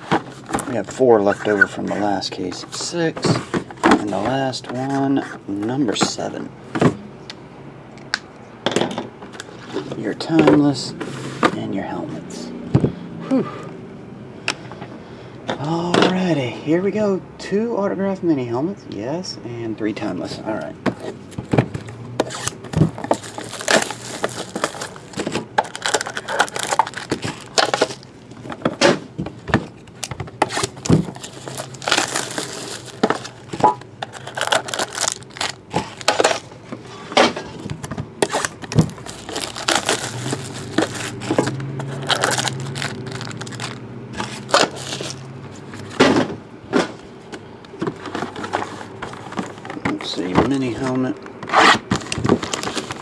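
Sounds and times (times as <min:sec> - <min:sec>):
plastic wrap crinkling and tearing: 0:22.2 - 0:28.1, 0:30.0 - 0:36.5, 0:38.2 - 0:45.3, 0:51.9 - 0:53.0.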